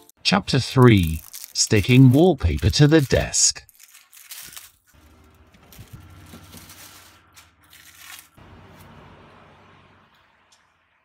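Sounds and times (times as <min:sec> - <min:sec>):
plastic wrap crinkling and tearing: 0:00.5 - 0:08.4.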